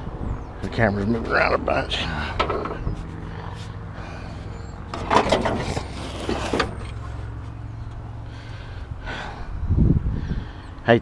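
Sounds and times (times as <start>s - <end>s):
radiator scraping against metal: 4.9s - 7.4s.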